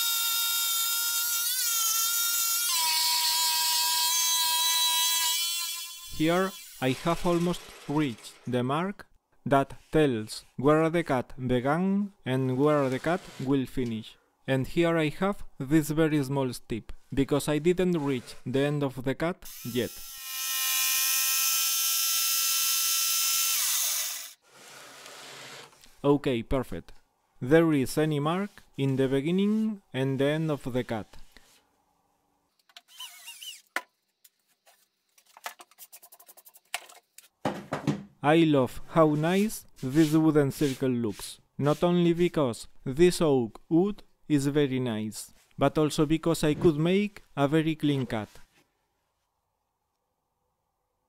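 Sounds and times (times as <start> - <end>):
electric jigsaw cutting wood: 4.0 - 8.4, 19.5 - 24.4
jigsaw motor winding down: 6.6 - 8.2, 19.5 - 24.4.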